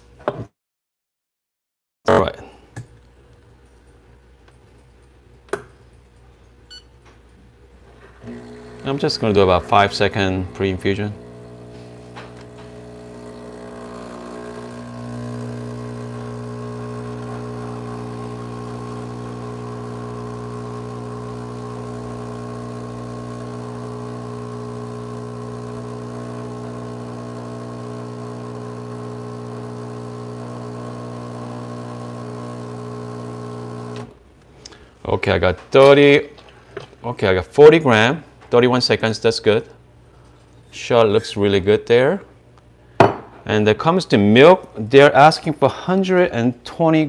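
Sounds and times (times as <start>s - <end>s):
espresso machine pump humming: 8.2s - 34.2s.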